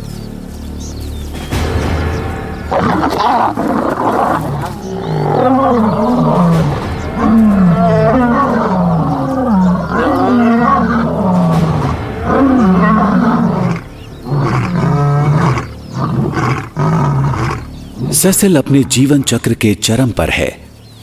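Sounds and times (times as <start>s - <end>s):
lions snarling and growling: 2.7s - 19.2s.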